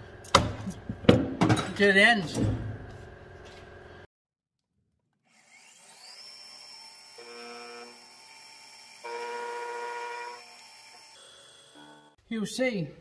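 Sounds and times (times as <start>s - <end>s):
end mill cutting aluminium: 5.3s - 12.2s
milling machine spindle whine: 5.5s - 12.2s.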